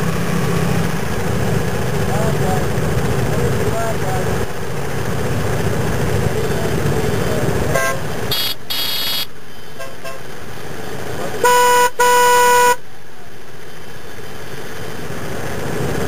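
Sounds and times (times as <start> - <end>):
motorcycles idling: 0.0 - 12.1
low-pitched horn honks: 7.7 - 9.2, 11.4 - 12.8
short high-pitched horn beeps: 7.8 - 10.2, 11.4 - 12.8.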